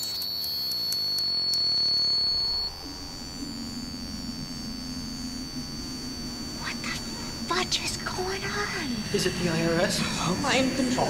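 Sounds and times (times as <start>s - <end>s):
high-pitched electronic whine: 0.0s - 11.0s
low steady drone: 0.0s - 11.0s.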